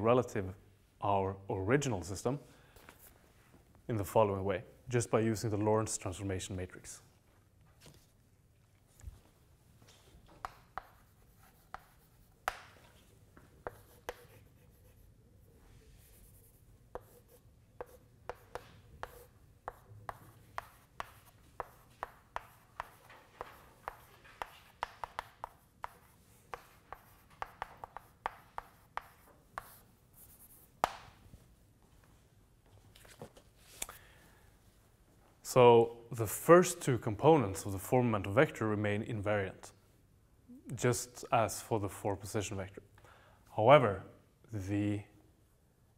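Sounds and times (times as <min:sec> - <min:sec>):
chalk tapping on blackboard: 0:10.4 - 0:12.9, 0:13.6 - 0:15.0, 0:16.9 - 0:31.2.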